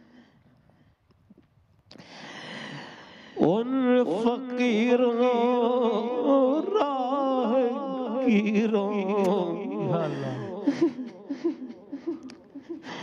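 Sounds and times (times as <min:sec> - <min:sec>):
man singing devotional poetry: 0:03.0 - 0:13.0.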